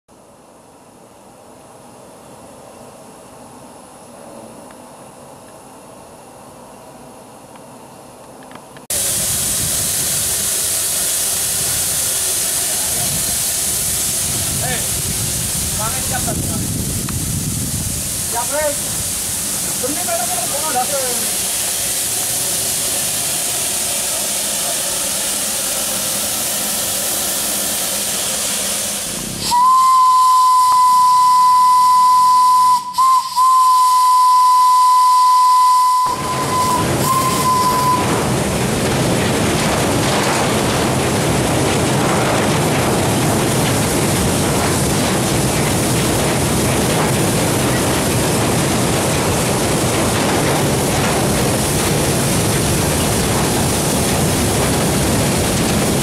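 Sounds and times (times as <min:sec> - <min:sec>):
steam locomotive running: 0:06.0 - 0:56.0
steam hissing from locomotive: 0:08.9 - 0:56.0
steam whistle blast: 0:29.4 - 0:38.1.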